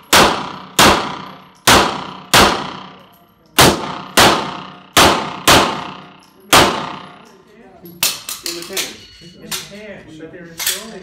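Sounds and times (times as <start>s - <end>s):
pistol shots echoing indoors: 0.0s - 7.2s.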